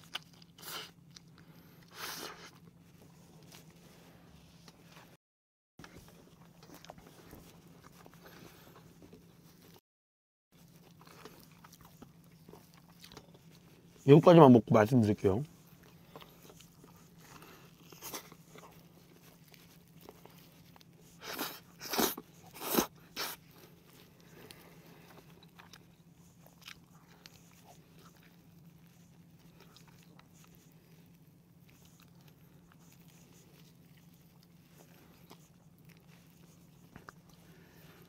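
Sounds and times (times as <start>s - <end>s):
crunchy bites of fried chicken: 0.0s - 2.6s
quiet chewing: 0.0s - 5.2s, 5.8s - 9.8s, 10.5s - 14.1s, 15.3s - 38.0s.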